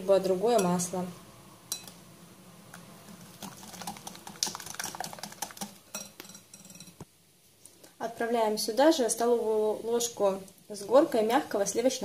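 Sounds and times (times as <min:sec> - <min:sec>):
whisk clicking against glass bowl: 0:03.4 - 0:07.0.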